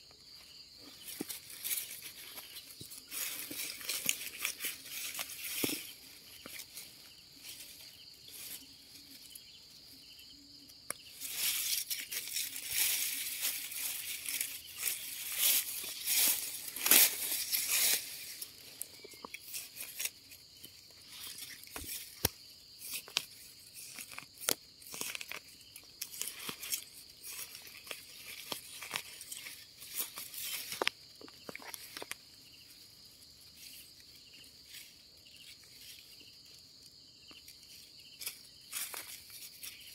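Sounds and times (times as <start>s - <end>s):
high-pitched insect drone: 0.0s - 39.9s
dry leaves rustling and crackling: 0.8s - 9.3s, 11.1s - 36.6s, 37.4s - 39.9s.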